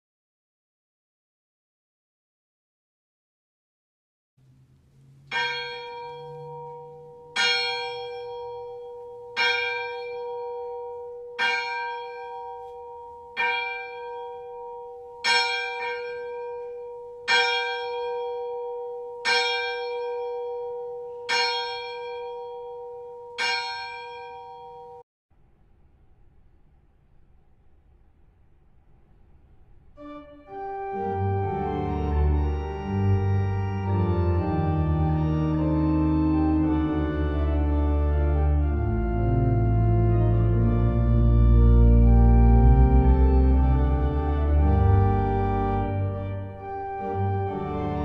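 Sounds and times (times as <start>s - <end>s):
church bell tolling: 4.4s - 25.0s.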